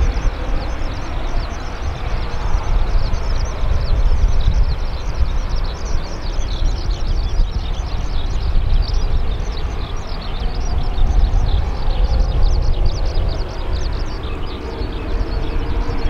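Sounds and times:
birds chirping: 0.0 - 16.0
jet engines rumbling: 0.0 - 16.0.

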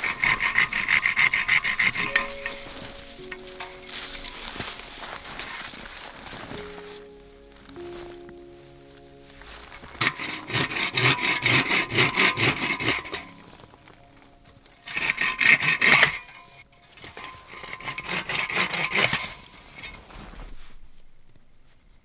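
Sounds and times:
hand saw rasping through wood: 0.0 - 2.8, 10.0 - 13.4, 14.9 - 16.4, 17.0 - 19.4.

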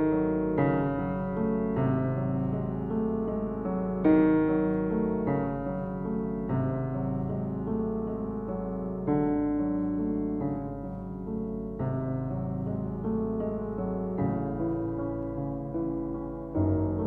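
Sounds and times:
slow piano chords: 0.0 - 17.0.

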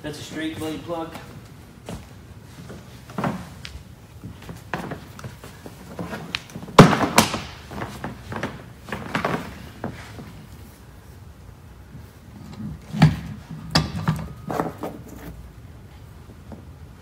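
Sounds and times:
footsteps on hardwood floor: 0.3 - 7.0.

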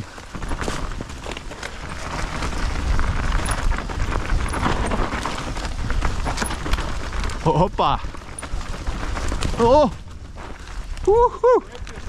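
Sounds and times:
bike rattling over ground: 0.0 - 12.0
bike tyre noise: 0.0 - 12.0
wind buffeting microphone: 0.0 - 12.0.

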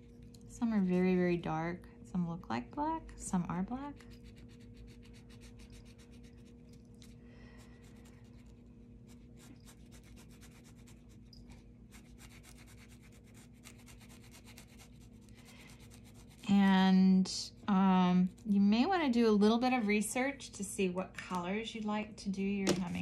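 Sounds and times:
marker rubbing on paper: 9.1 - 11.2, 11.9 - 15.2.

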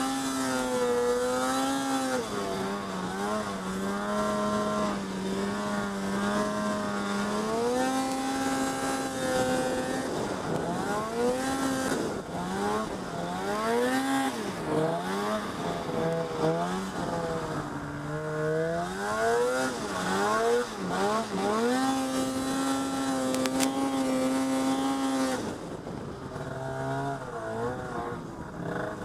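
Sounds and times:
snow bike engine revving: 0.0 - 29.0.

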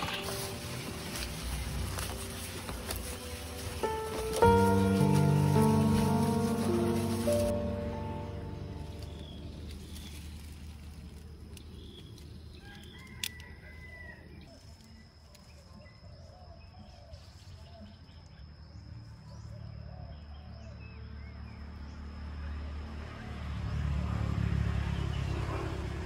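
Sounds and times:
steady low rumble: 0.0 - 12.6.

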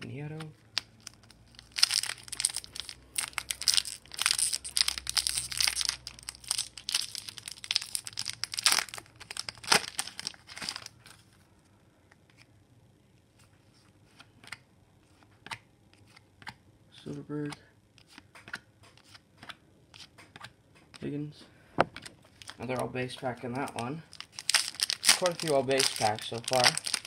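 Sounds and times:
foil wrapper crinkling and tearing: 0.7 - 11.0, 22.4 - 22.6, 23.6 - 27.0.

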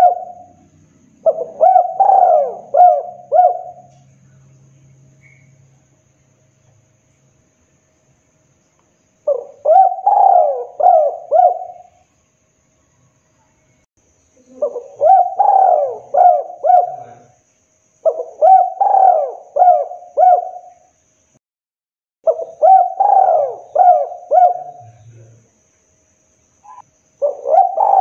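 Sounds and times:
dove cooing: 0.0 - 4.0, 9.3 - 12.0, 14.4 - 17.4, 18.0 - 20.8, 22.3 - 25.3, 26.7 - 28.0.

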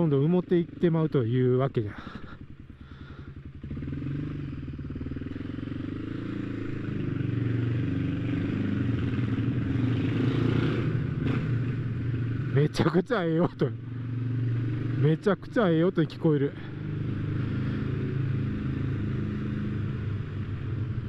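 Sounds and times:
motorcycle engine pulling away: 2.0 - 12.5.

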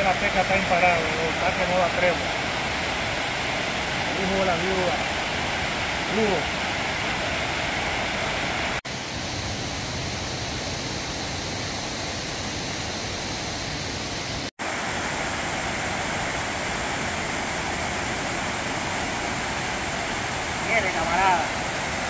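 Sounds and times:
water pouring over a dam: 0.0 - 8.8, 14.6 - 22.0.

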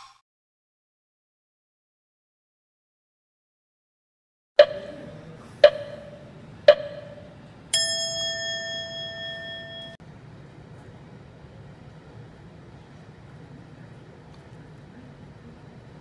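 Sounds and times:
sharp ringing strikes: 4.6 - 10.0
bright bell ding: 7.8 - 10.0.

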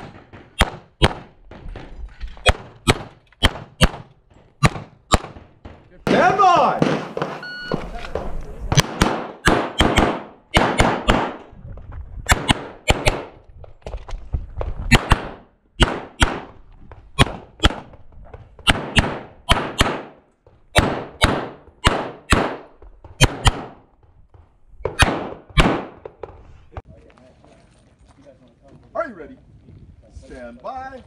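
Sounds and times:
pistol shots: 0.0 - 1.6, 2.5 - 7.4, 8.1 - 11.4, 12.3 - 13.4, 14.9 - 16.5, 17.2 - 18.0, 18.6 - 23.8, 24.8 - 26.1
gunshot echo: 2.5 - 7.4, 8.1 - 11.4, 18.7 - 20.2, 20.8 - 23.8, 24.8 - 26.0.

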